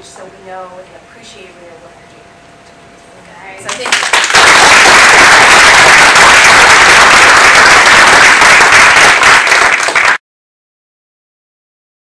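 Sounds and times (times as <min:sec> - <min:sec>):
audience applauding: 0:03.7 - 0:10.2.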